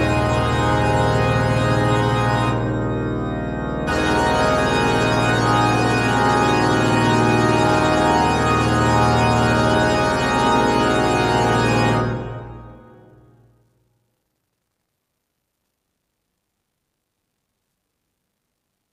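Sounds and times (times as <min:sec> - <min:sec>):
church organ chord: 0:00.0 - 0:13.6.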